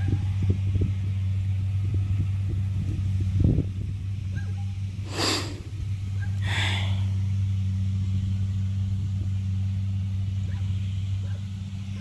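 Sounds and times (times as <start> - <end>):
combine harvester diesel engine: 0.0 - 12.0
short hiss: 5.1 - 5.7.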